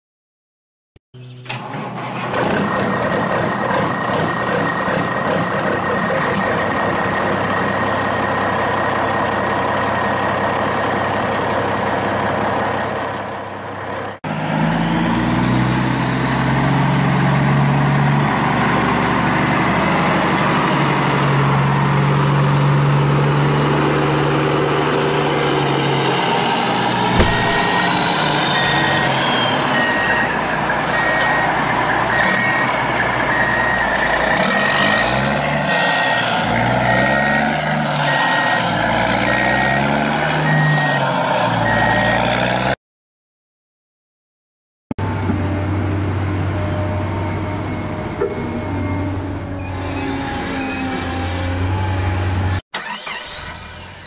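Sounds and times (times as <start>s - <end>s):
truck engine running: 1.7s - 14.2s, 26.5s - 29.1s
reversing alarm beeping: 27.1s - 34.1s, 36.8s - 42.4s.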